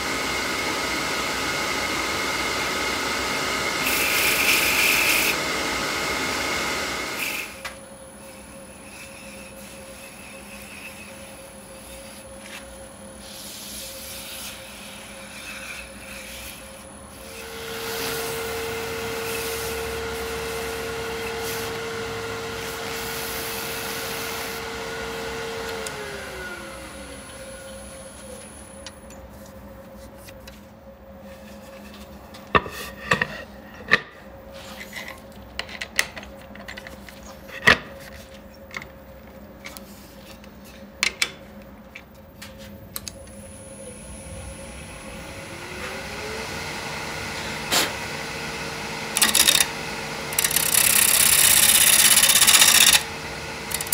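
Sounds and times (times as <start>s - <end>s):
wood lathe motor whine: 0.0s - 29.0s, 43.1s - 53.9s.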